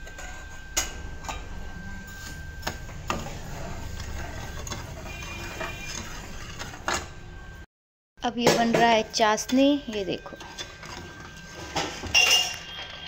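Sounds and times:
steel ladle scraping a pan: 2.0s - 7.1s, 9.4s - 13.0s.

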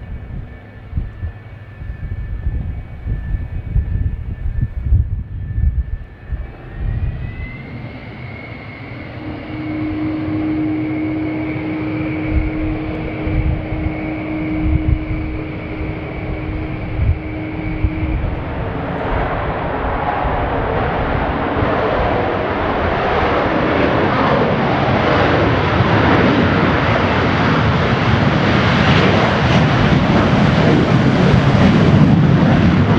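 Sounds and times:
low engine rumble: 0.0s - 24.5s
jet engine whine: 0.0s - 32.9s
jet take-off roar: 0.0s - 32.9s.

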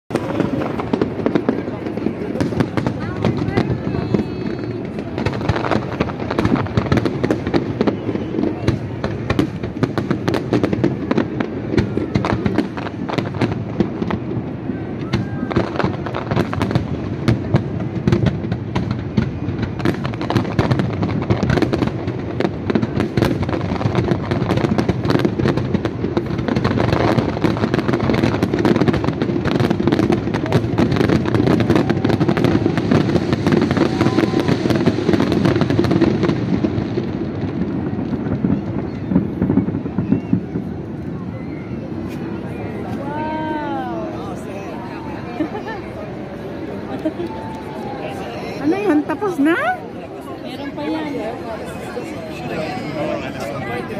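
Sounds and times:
fireworks bursts and bangs: 0.1s - 53.9s.

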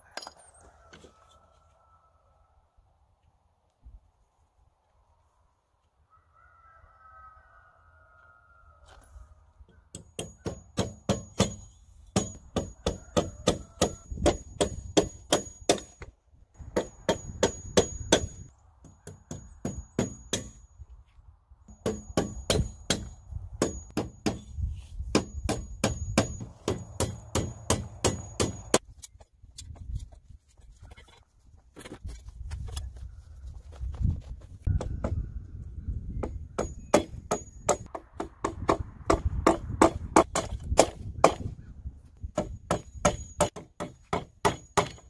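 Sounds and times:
hammer striking nails in metal: 25.1s - 28.8s, 42.4s - 45.0s.

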